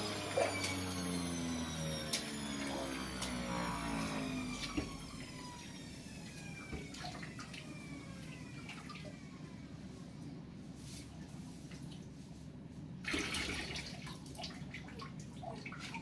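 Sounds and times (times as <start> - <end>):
juicer motor spinning down: 0.0 - 9.8.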